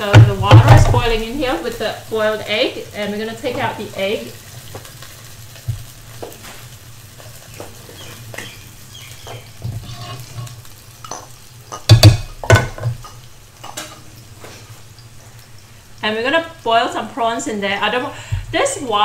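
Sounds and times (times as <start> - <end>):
boiling water hissing: 0.0 - 19.0
loud knocks: 11.9 - 13.0.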